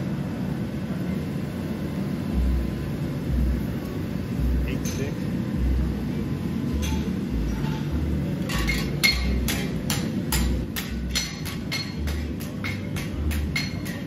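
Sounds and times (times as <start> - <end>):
low pulsing rumble: 2.3 - 4.8, 5.4 - 8.3
hammer striking steel: 6.7 - 14.0.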